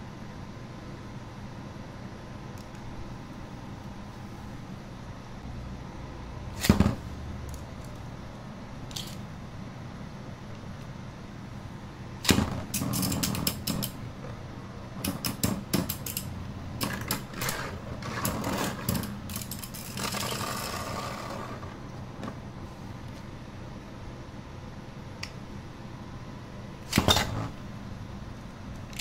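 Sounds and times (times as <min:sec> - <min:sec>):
spinning tops clacking: 0:15.1 - 0:21.5
spinning top whirring scrape: 0:16.9 - 0:21.8.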